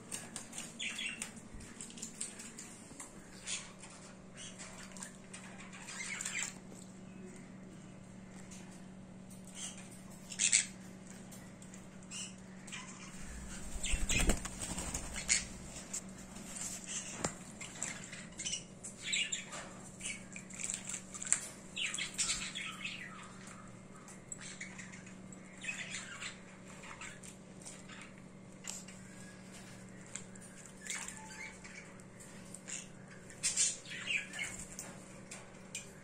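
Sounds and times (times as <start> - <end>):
bird flapping wings: 13.2 - 16.8.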